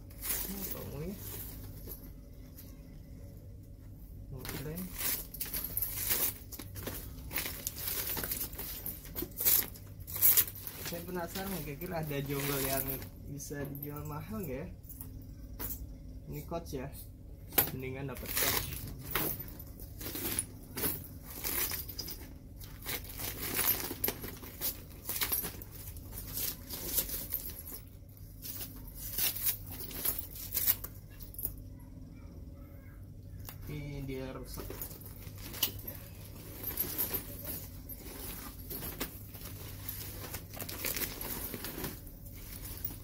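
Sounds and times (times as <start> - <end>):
handbags rustling and scraping: 0.0 - 3.3, 4.2 - 15.8, 17.6 - 31.6, 34.4 - 43.0.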